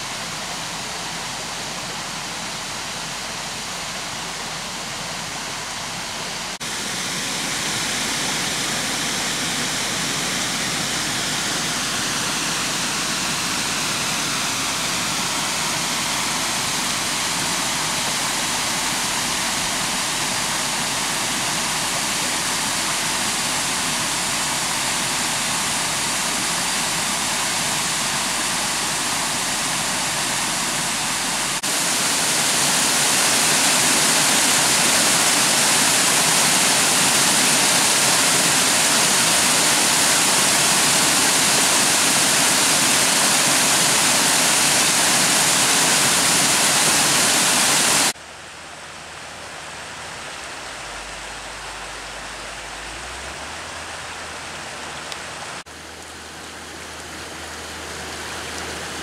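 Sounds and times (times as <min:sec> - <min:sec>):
brook running over stones: 0:06.0 - 0:48.2
water pouring over spillway onto rocks: 0:06.6 - 0:48.2.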